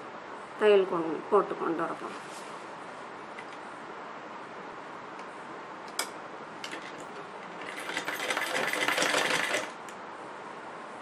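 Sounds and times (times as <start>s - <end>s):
sewing machine needle clatter: 6.6s - 9.8s.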